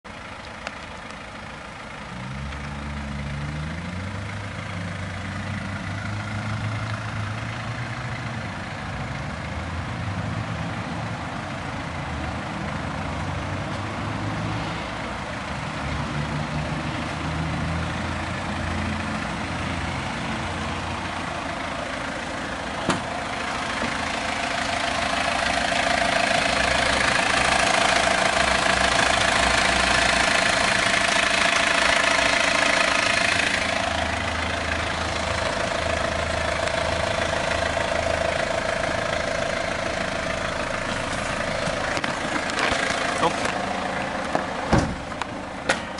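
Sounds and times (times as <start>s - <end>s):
diesel engine idling: 0.1s - 45.9s.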